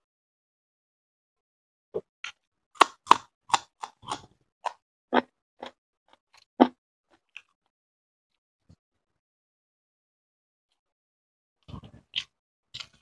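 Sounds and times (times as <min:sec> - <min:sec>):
crunchy chewing: 0:02.8 - 0:05.8.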